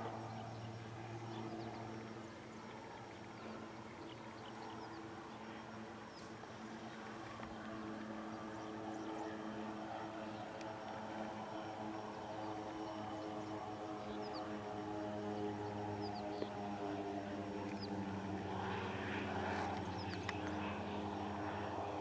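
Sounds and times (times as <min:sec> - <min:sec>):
propeller plane engine droning: 0:00.0 - 0:22.0.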